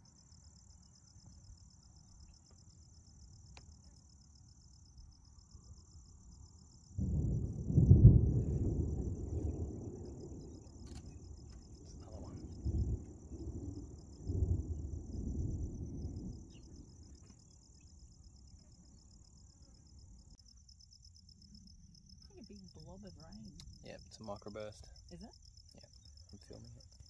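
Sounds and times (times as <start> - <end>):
insects chirping: 0.0 - 27.0
distant thunder rumbling: 6.9 - 20.4.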